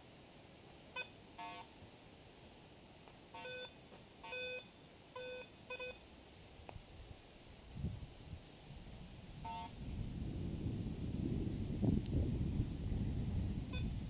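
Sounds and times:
metal detector short beeps: 0:03.4 - 0:06.0.

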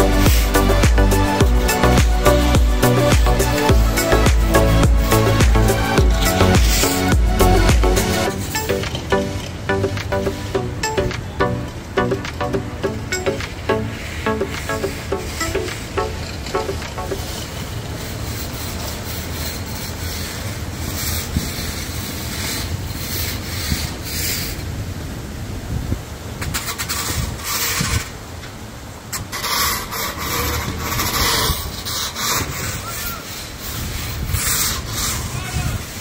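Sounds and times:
vehicles passing: 0:00.0 - 0:25.6.

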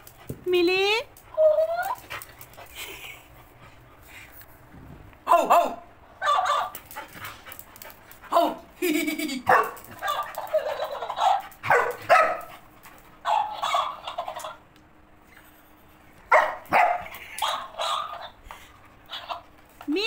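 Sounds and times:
dog barking: 0:05.3 - 0:06.8, 0:09.5 - 0:12.5, 0:13.2 - 0:14.0, 0:16.3 - 0:18.4.

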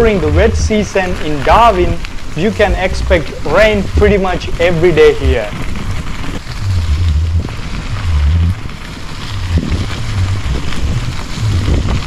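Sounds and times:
tyres rolling on dirt: 0:00.0 - 0:12.0
wind buffeting microphone: 0:00.0 - 0:12.0.

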